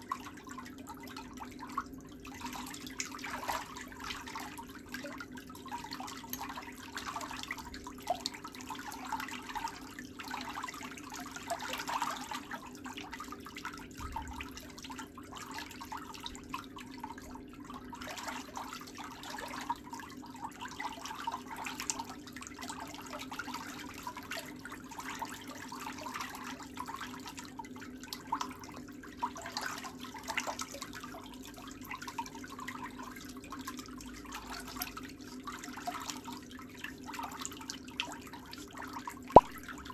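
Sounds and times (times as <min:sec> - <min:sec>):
water trickling: 0:00.0 - 0:39.9
low steady hum: 0:39.4 - 0:39.9.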